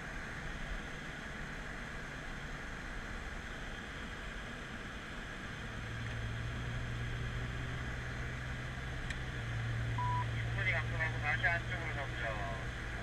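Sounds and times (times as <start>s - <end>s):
car engine drone: 0.0s - 13.0s
road and wind noise: 0.0s - 13.0s.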